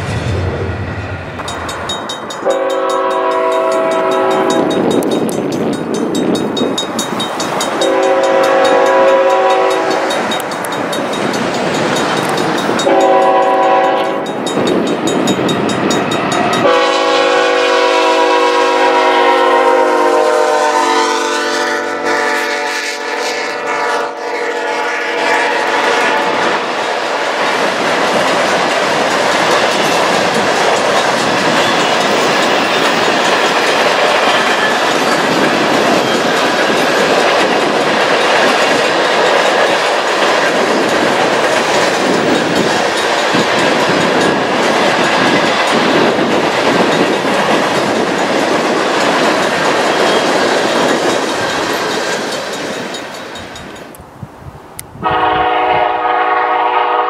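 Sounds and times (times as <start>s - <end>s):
train wheels clattering on rails: 0.0s - 21.7s, 25.6s - 54.0s
train horn blast: 2.4s - 4.7s, 7.8s - 10.3s, 12.8s - 14.4s, 16.6s - 26.7s, 55.0s - 57.0s.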